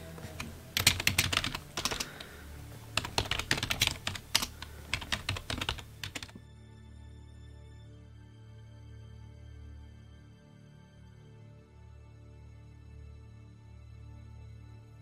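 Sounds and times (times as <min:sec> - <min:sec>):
fast typing on keyboard: 0:00.4 - 0:02.4, 0:03.0 - 0:06.4.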